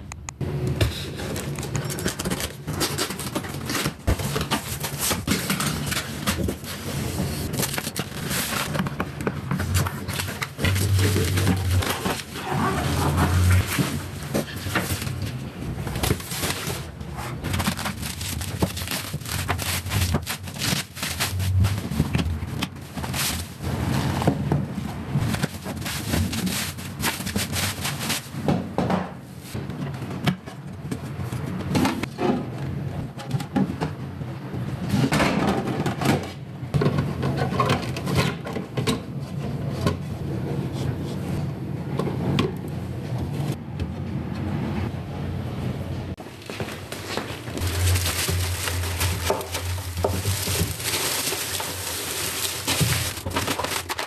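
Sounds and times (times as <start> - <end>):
bubble wrap and cardboard rustling: 0.9 - 28.6, 46.2 - 54.0.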